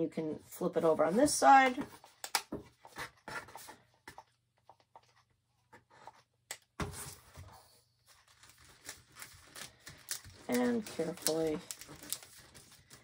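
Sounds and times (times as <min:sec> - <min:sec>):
thin plastic rustling: 0:08.1 - 0:13.0
loud plastic crinkle: 0:08.2 - 0:13.0.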